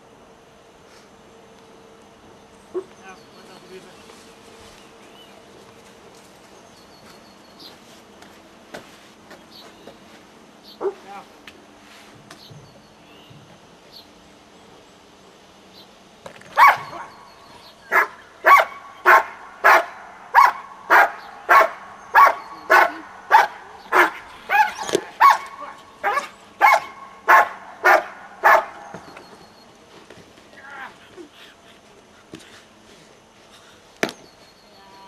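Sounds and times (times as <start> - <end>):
dog barking hard: 16.6 - 17.2, 17.9 - 28.9.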